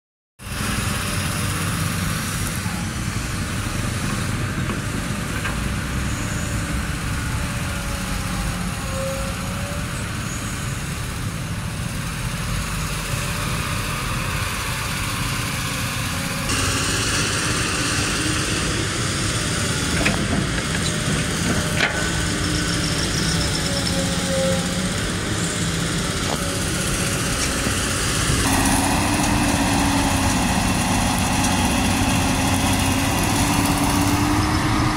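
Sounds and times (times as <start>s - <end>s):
dump truck diesel engines: 0.4s - 34.9s
excavator diesel engine running: 0.4s - 34.9s.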